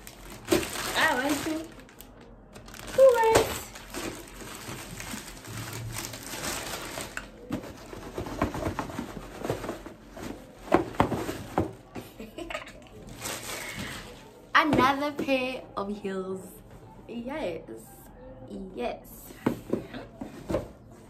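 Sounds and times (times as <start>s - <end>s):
plastic bag rustling and crinkling: 0.0s - 11.9s, 12.9s - 14.5s.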